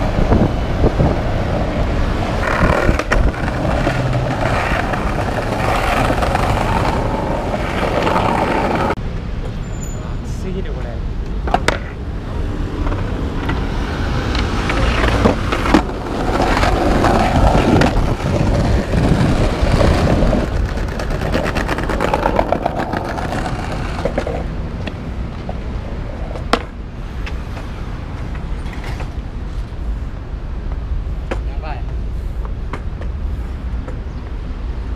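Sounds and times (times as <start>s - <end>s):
skateboard wheels rolling on tiles: 0.0s - 9.0s, 12.7s - 29.2s.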